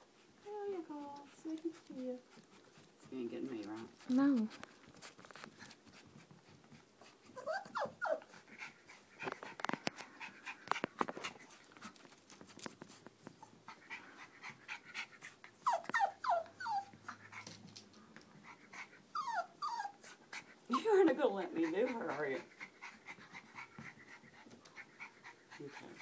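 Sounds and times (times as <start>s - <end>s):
puppies whimpering: 7.3s - 8.3s, 15.5s - 17.0s, 18.8s - 22.5s.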